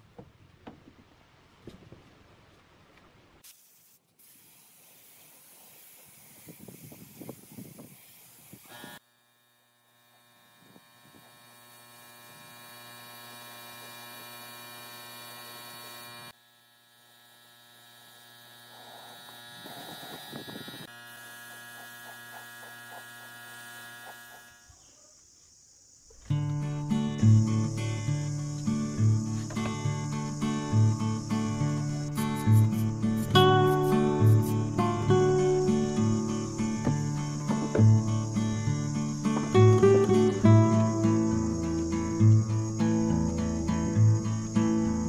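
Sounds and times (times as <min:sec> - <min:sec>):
spray gun hissing: 0:03.4 - 0:09.0, 0:27.4 - 0:42.7
electric hum: 0:08.1 - 0:24.8, 0:26.3 - 0:45.0.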